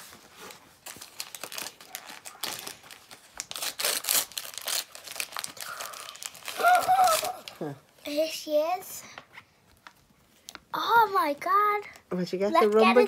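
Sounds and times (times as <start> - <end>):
wrapper crinkling and tearing: 0.0 - 8.0.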